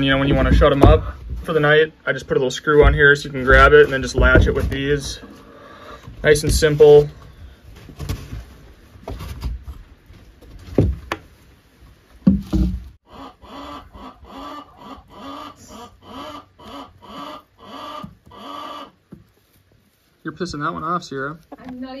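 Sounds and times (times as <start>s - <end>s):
wooden door knocks: 0.2s - 1.5s, 2.8s - 4.8s
hen calling agitatedly: 13.0s - 19.1s.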